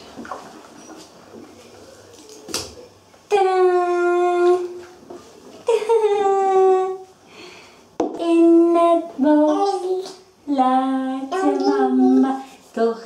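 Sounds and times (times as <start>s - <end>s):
woman singing: 8.0s - 13.0s
toddler singing: 8.2s - 12.5s.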